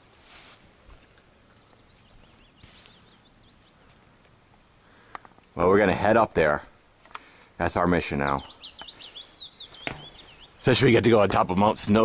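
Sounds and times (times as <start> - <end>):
soft rustles: 0.0 - 1.3, 1.9 - 4.4
small bird chirping: 1.1 - 4.0, 7.2 - 11.0.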